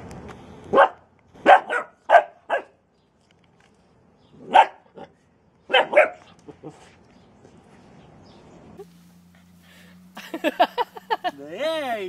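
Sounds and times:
puppy barking: 0.7s - 2.8s, 4.4s - 5.1s, 5.7s - 6.3s.

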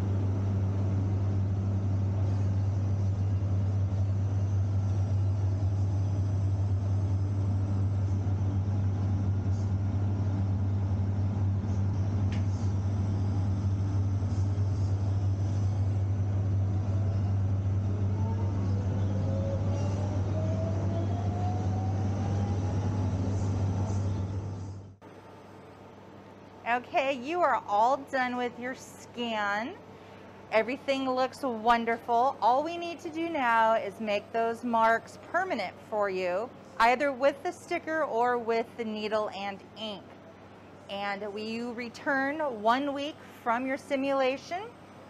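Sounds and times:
rising whine: 0.0s - 25.0s
scanner mechanical hum: 0.0s - 45.0s.

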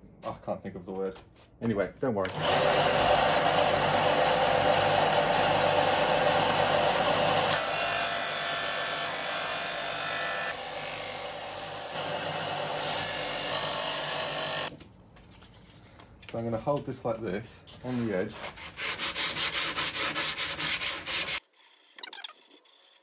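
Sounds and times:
sander motor humming: 2.3s - 10.6s
sanding disc rasping on wood: 18.3s - 21.6s.

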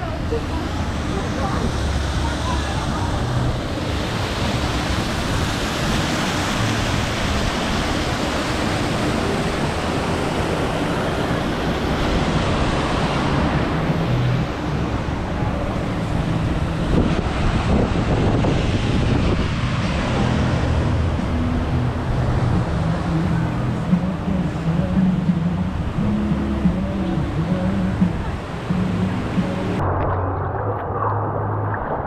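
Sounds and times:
wind on microphone: 0.0s - 32.0s
water pouring and splashing: 0.5s - 14.6s, 29.8s - 32.0s.

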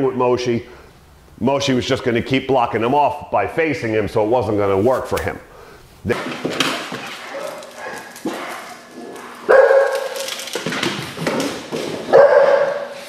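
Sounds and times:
dog barking: 7.2s - 10.2s, 12.1s - 13.0s.

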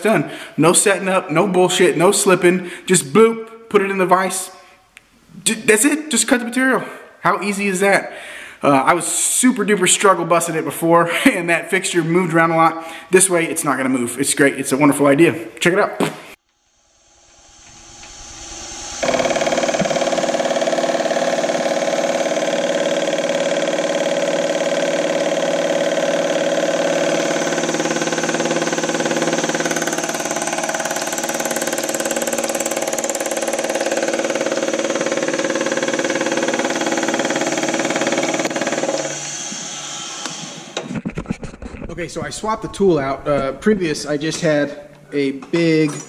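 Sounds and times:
milling machine cutting metal: 17.6s - 40.8s.

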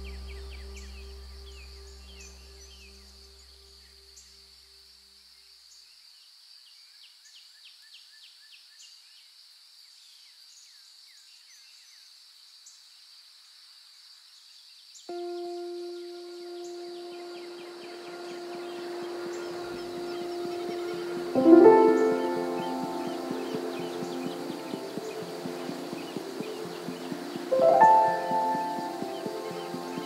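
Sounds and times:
soft background music: 15.1s - 30.0s.

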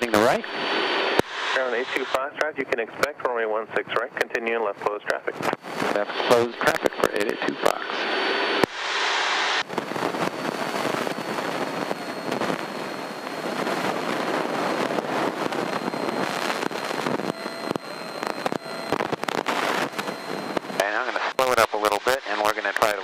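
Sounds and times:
faint high whine: 0.0s - 23.0s
radio static hiss: 0.0s - 23.0s
sharp clicks and pops: 9.6s - 20.9s.

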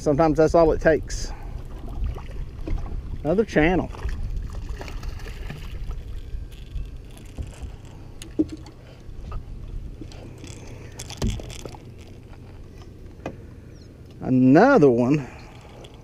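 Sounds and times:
wind rumble on microphone: 0.0s - 14.0s
knocks and taps on a boat: 8.2s - 8.7s.

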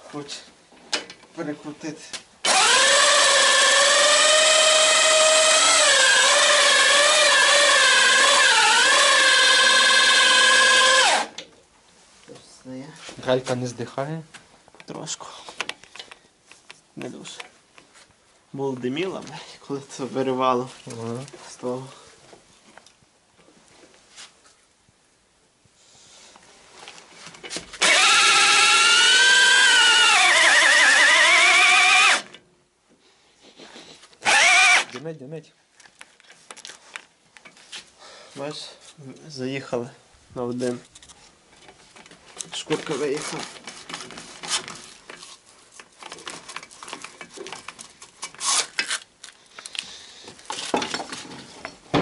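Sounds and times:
electric drill motor whine: 2.4s - 11.3s, 27.8s - 32.3s, 34.2s - 34.9s
rustling: 33.0s - 38.0s, 40.4s - 51.9s.

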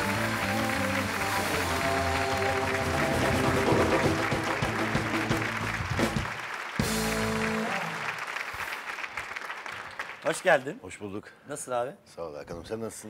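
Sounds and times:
studio band playing: 0.0s - 8.2s
audience applause: 0.0s - 10.7s.

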